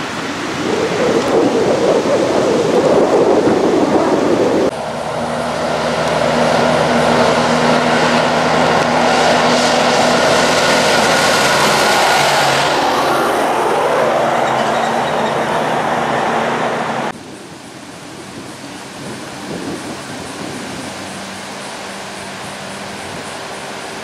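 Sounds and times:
loud rushing noise: 0:00.0 - 0:24.0
tyre and road noise: 0:00.0 - 0:24.0
diesel truck engine: 0:04.4 - 0:17.2.

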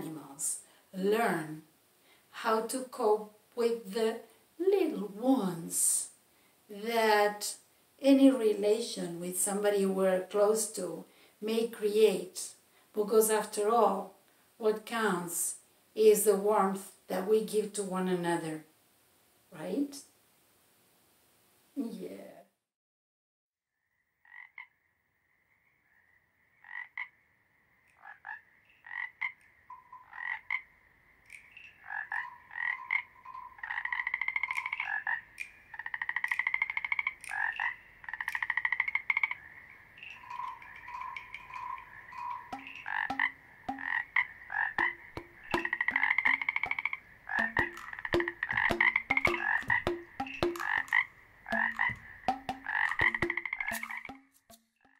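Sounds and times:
frogs croaking: 0:23.9 - 0:54.9.

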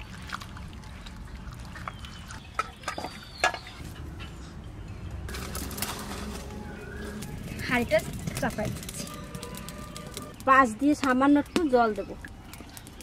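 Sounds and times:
dry straw rustling: 0:05.3 - 0:10.6.

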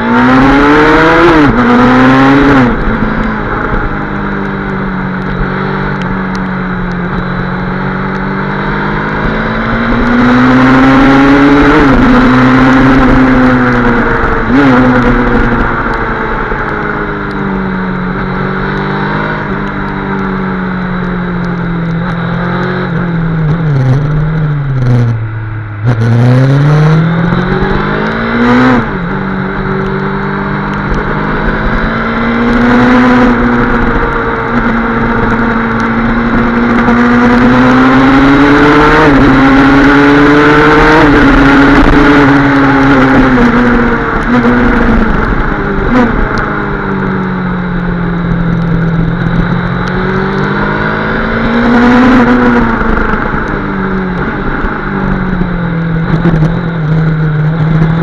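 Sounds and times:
rally car engine revving: 0:00.0 - 0:58.0.

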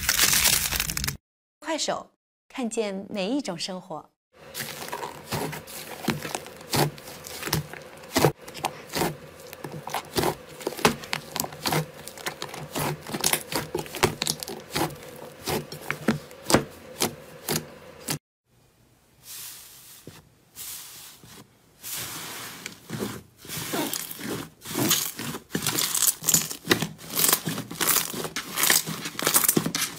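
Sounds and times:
hands kneading sticky slime: 0:04.4 - 0:18.2, 0:21.9 - 0:29.9.

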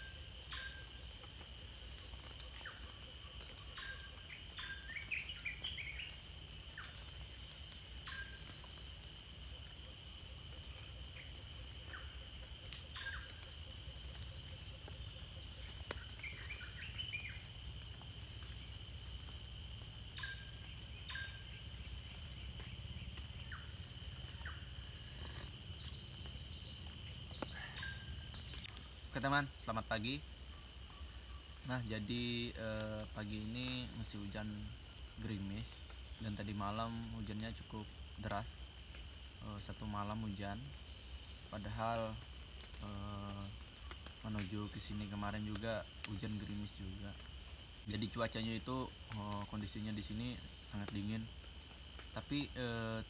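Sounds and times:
insect drone: 0:00.0 - 0:53.0
birds chirping: 0:19.9 - 0:29.8.

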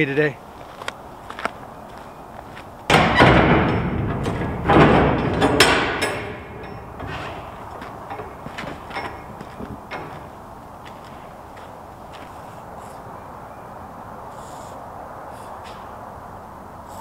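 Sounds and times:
metal door grating on hinges: 0:02.9 - 0:10.6.

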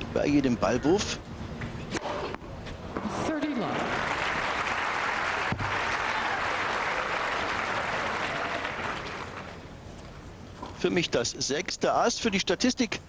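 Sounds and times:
stadium crowd applauding: 0:03.7 - 0:09.6.

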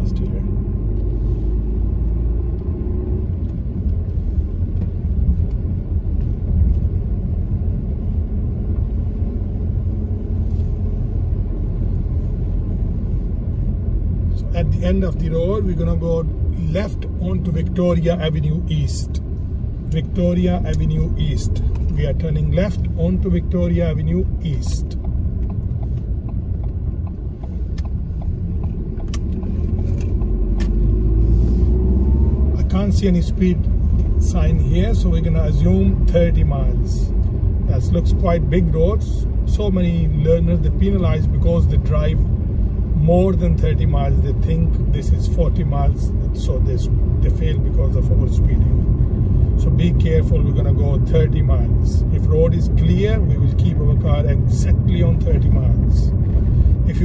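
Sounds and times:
car engine and tyres rumbling: 0:00.0 - 0:57.0
turn indicator ticking: 0:14.8 - 0:31.2.

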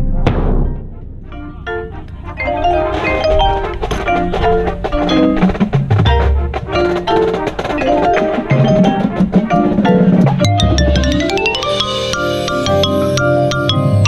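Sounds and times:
low drum hits: 0:00.0 - 0:06.8
mallet keyboard notes: 0:01.3 - 0:14.0.

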